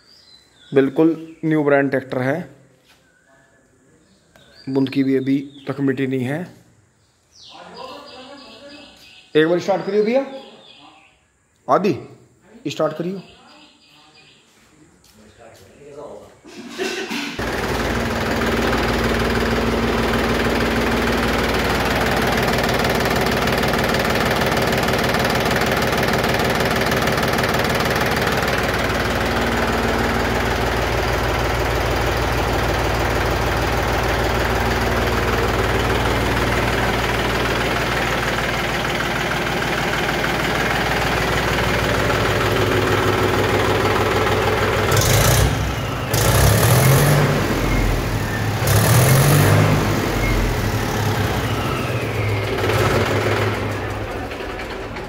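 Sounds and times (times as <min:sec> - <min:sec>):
tractor engine revving: 0:16.8 - 0:55.0
tractor diesel engine idling: 0:17.3 - 0:55.0.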